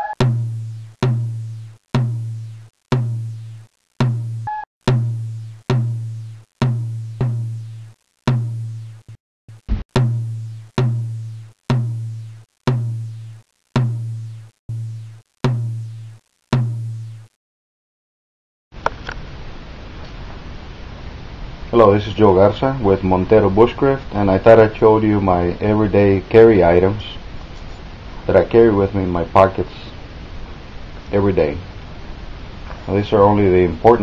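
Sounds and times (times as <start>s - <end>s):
deep drum hits: 0.2s - 3.4s, 4.0s - 7.6s, 9.7s - 13.1s, 13.8s - 15.9s.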